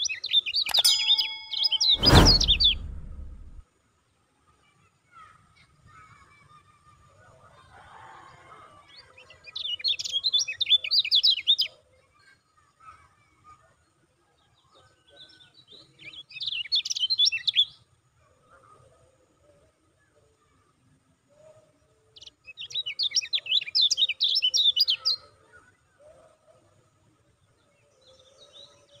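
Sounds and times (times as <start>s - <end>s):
bird singing high chattering notes: 0.6s - 2.8s.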